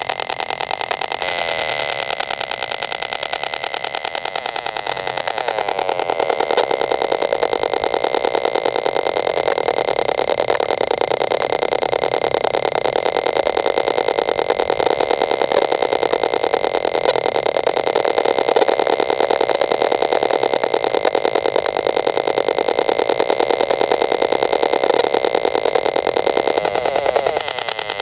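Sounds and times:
pulsing electronic buzz: 0.0 - 28.0.

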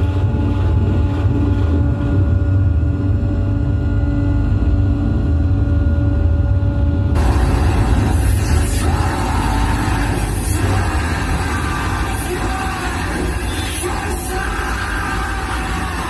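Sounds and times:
dense low rumble: 0.0 - 16.0
harsh hiss and screech: 7.2 - 16.0
harsh noise music: 7.2 - 16.0.

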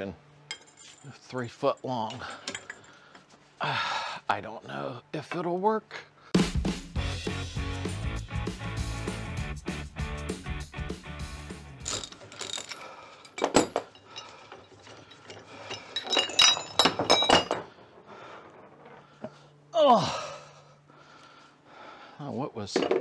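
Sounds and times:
metal clanks: 1.8 - 3.2, 11.8 - 19.4
background music: 3.6 - 14.5.

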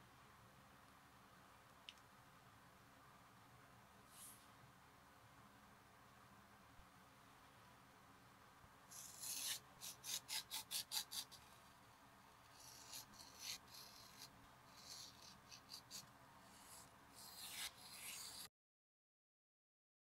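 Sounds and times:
knife cutting leather: 8.9 - 11.4, 12.6 - 18.5.

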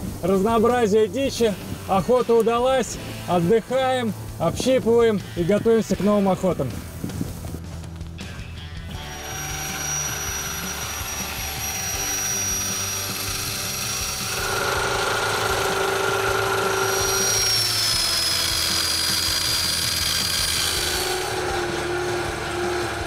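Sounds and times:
engine running with high whine: 6.8 - 23.0.

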